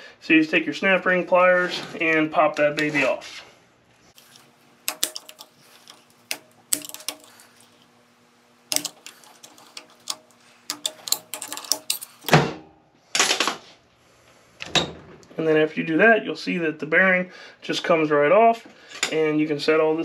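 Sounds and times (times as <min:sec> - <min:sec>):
metal clicks and ticks: 0:04.2 - 0:07.8, 0:08.7 - 0:12.4
metal scraping: 0:08.7 - 0:12.4.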